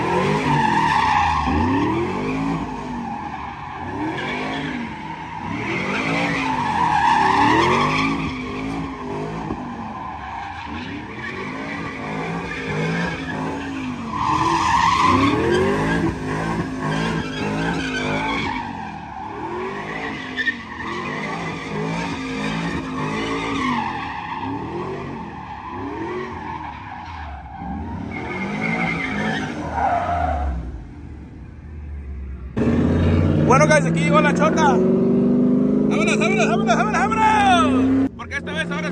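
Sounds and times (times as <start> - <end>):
tyres squealing on pavement: 0.0 - 30.6
truck engine revving: 32.6 - 38.9.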